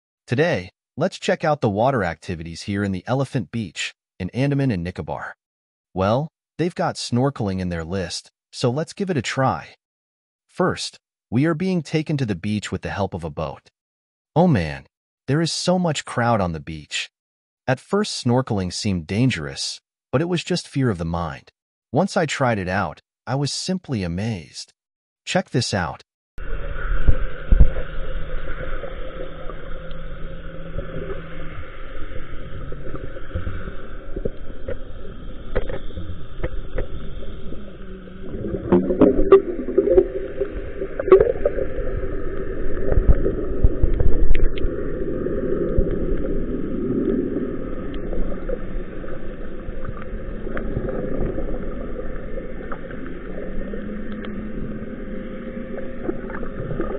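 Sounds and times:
muffled underwater sloshing: 26.4 - 56.9.

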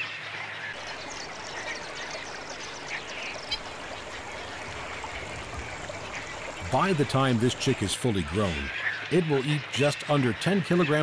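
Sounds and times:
steady background noise: 0.7 - 8.8
waterbird calls: 0.7 - 9.4.

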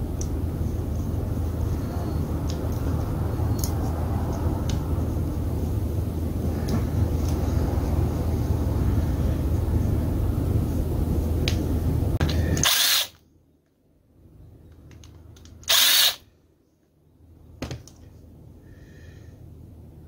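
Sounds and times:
power screwdriver whirring: 12.5 - 13.2, 15.6 - 16.2.

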